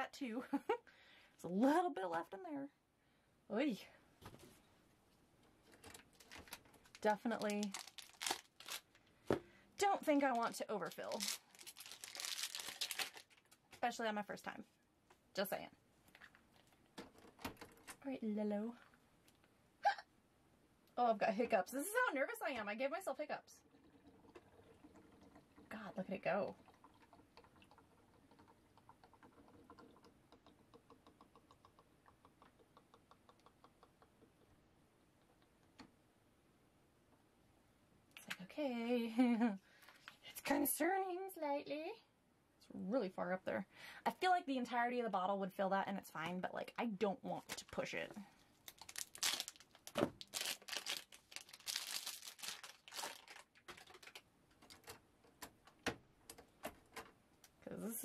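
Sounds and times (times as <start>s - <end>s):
plastic crinkling: 5.7s - 9.1s, 10.2s - 13.8s, 48.6s - 55.0s
ink bottle ticking gurgle: 23.6s - 35.8s.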